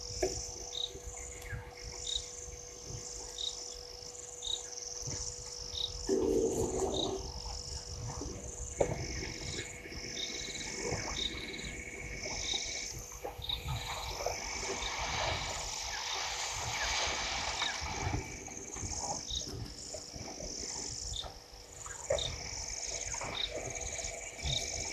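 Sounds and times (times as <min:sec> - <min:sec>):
frogs calling: 0:00.0 - 0:24.9
steady high whine: 0:00.0 - 0:24.9
low rumble: 0:06.1 - 0:15.8.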